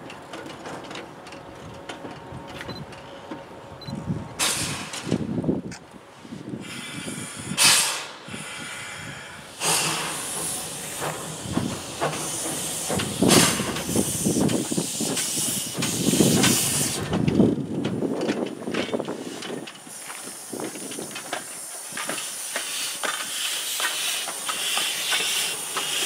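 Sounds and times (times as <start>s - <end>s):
locomotive hissing steam bursts: 4.4s - 5.1s, 6.1s - 17.1s, 19.1s - 26.0s
low locomotive puffs: 6.0s - 26.0s.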